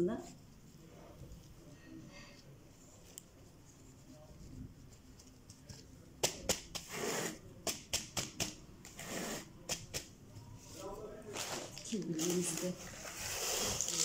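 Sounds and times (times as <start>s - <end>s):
scraping rustles: 10.6s - 14.0s.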